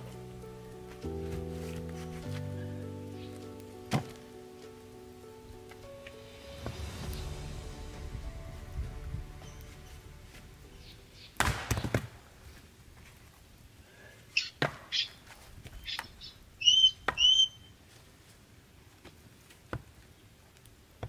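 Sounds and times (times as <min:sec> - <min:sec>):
firewood knocking: 0:03.3 - 0:04.3
axe splitting log: 0:03.9 - 0:04.2
split wood clattering down: 0:03.9 - 0:04.2
short high bird calls: 0:15.8 - 0:17.8.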